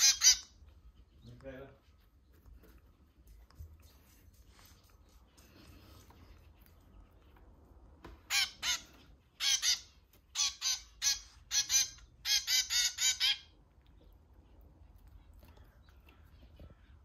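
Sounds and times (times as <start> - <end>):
zebra finch begging calls: 0.0 - 0.6, 8.3 - 13.6.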